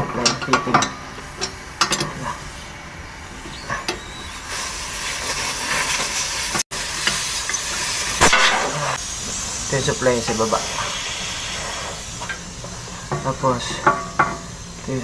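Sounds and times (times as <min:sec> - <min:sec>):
compressed air hissing: 0:01.0 - 0:15.0.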